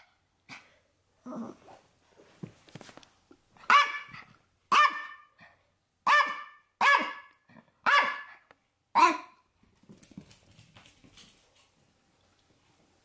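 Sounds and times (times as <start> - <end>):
faint scuffling: 2.1 - 3.3
small dog barking: 3.6 - 5.3, 6.0 - 8.4, 9.0 - 9.4.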